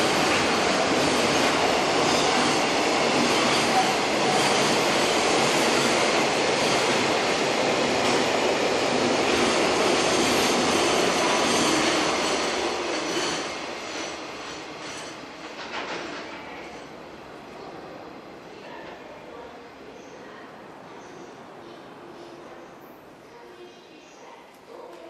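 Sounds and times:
freight train wagons rolling on rails: 0:00.0 - 0:17.4.

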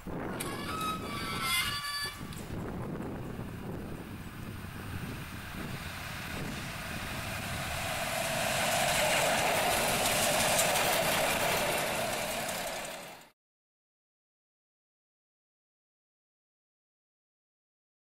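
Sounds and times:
diesel railcars passing: 0:00.0 - 0:13.4.

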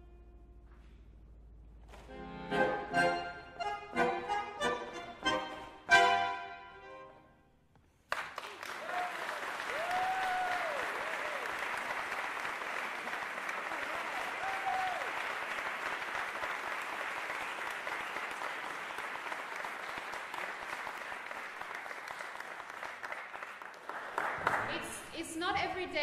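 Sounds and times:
audience applauding: 0:08.1 - 0:25.1
cheers: 0:08.4 - 0:12.3, 0:13.0 - 0:15.8.

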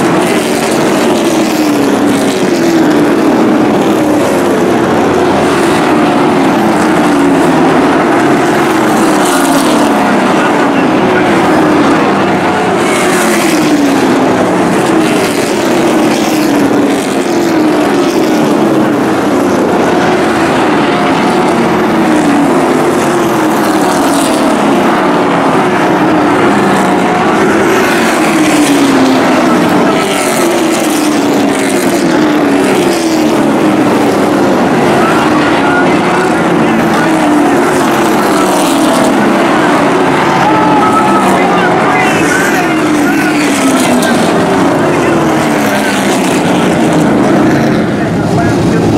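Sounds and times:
race trucks passing: 0:00.0 - 0:48.9.

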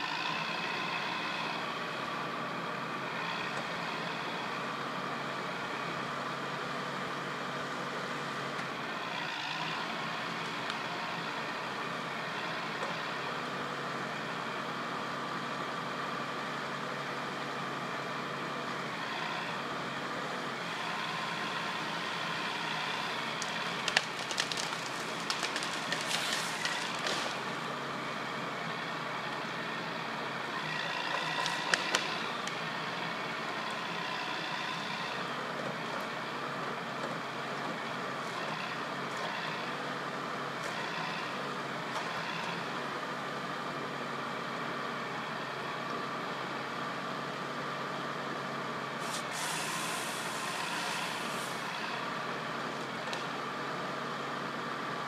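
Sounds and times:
forestry harvester engine running: 0:00.0 - 0:55.0
wood cracking and snapping: 0:23.3 - 0:27.7, 0:31.2 - 0:32.6.

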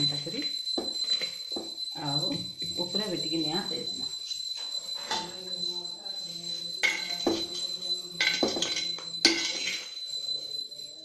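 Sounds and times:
metal spoon clinking on clay pot: 0:06.8 - 0:07.6, 0:08.2 - 0:09.9.

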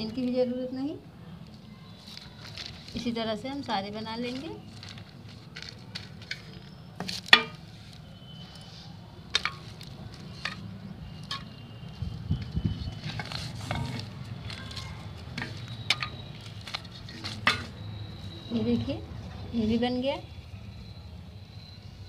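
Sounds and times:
plastic sheets crinkling: 0:01.4 - 0:18.4.

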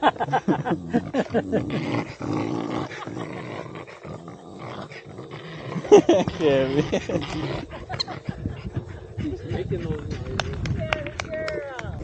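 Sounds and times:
dog growling in play: 0:00.3 - 0:10.3.

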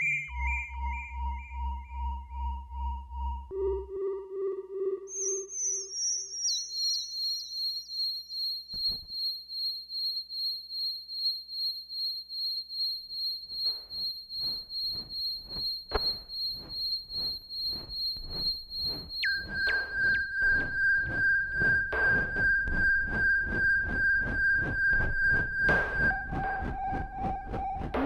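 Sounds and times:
pulsing high-pitched sine tone: 0:00.0 - 0:28.0
sharp click: 0:08.7 - 0:09.1
noisy rhythmic hits: 0:13.6 - 0:28.0.

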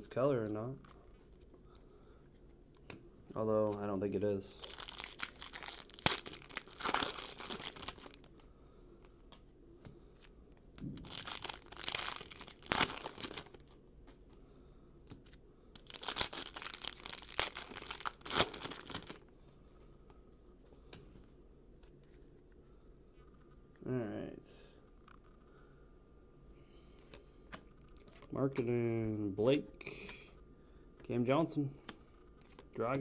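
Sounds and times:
foil wrappers tearing and crinkling: 0:04.6 - 0:08.3, 0:11.0 - 0:13.7, 0:15.8 - 0:19.2.

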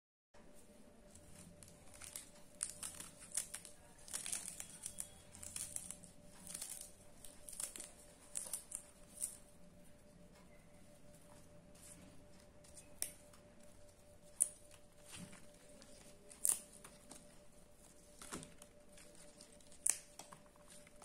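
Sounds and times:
spinach leaves rustling: 0:01.3 - 0:09.4
crackly stem snaps: 0:19.6 - 0:20.4.

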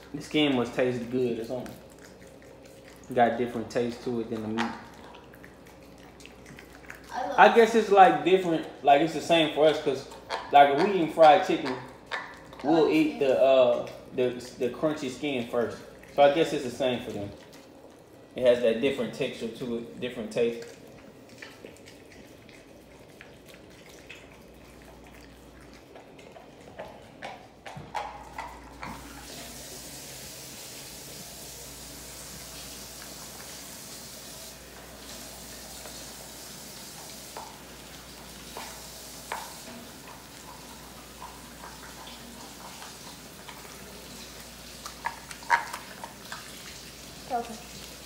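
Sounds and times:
dog licking and gnawing: 0:00.0 - 0:48.0
wet smacking and clicking: 0:10.1 - 0:12.8, 0:17.0 - 0:18.4, 0:20.5 - 0:29.2, 0:44.7 - 0:46.9.

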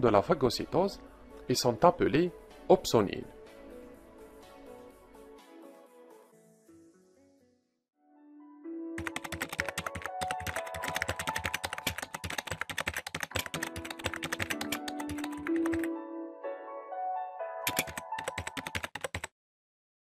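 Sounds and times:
light melodic background music: 0:00.0 - 0:19.2
rapid keyboard typing: 0:09.0 - 0:15.9, 0:17.7 - 0:19.3.

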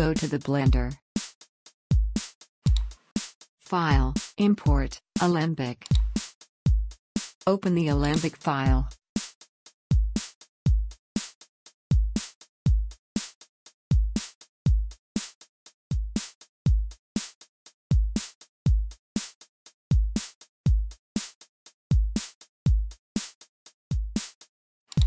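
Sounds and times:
electronic drum beat: 0:00.0 - 0:24.4.

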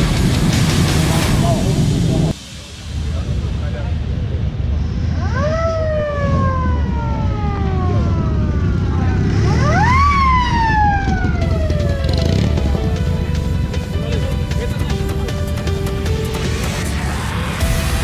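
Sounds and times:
steady low rumble: 0:00.0 - 0:09.3
siren wailing: 0:05.0 - 0:12.5.

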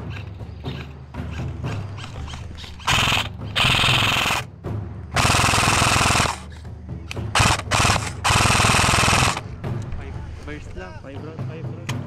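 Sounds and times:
airsoft gun firing full-auto bursts: 0:02.8 - 0:04.5, 0:05.2 - 0:06.5, 0:07.4 - 0:09.5.

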